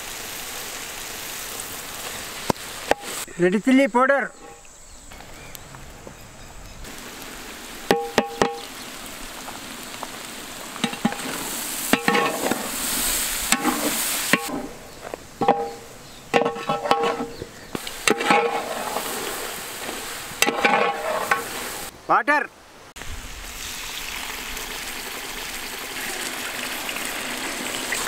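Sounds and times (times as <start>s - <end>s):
food sizzling in a pot: 0.0s - 3.3s, 6.8s - 21.9s, 23.0s - 28.0s
metal ladle knocking on pot: 7.9s - 8.6s, 15.4s - 17.4s.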